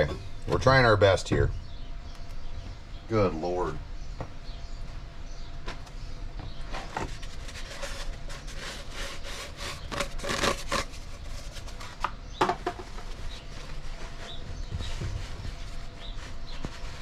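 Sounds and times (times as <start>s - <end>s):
paper towels tearing off roll: 8.5s - 11.3s.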